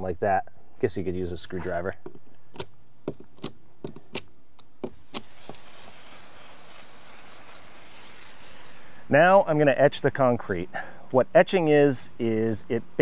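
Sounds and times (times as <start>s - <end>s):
hose spraying water on concrete: 5.0s - 9.2s.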